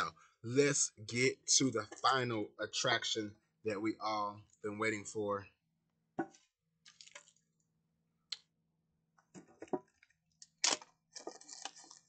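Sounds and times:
plastic shrink-wrap tearing and crinkling: 0:10.4 - 0:12.0.

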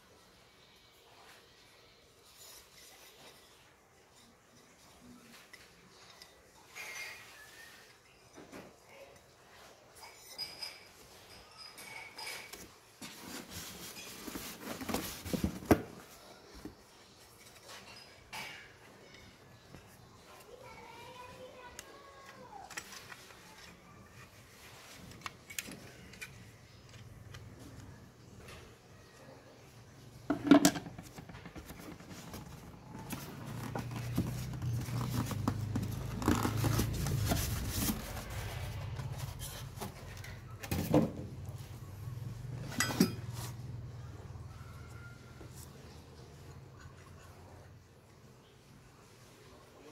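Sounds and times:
cardboard rustling: 0:13.0 - 0:16.8, 0:30.9 - 0:40.2
parts knocking: 0:30.2 - 0:38.3.

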